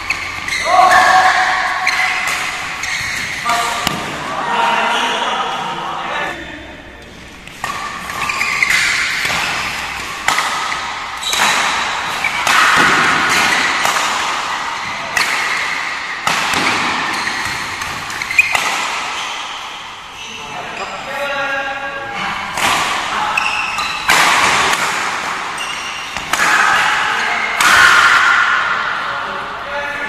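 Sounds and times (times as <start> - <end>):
rackets smacking shuttlecock: 0.0 - 4.2, 7.4 - 19.9, 22.5 - 28.6.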